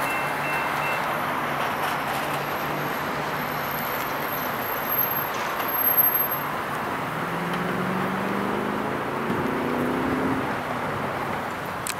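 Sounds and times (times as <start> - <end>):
road traffic noise: 0.0 - 11.9
vehicle engine pulling away: 6.9 - 10.8.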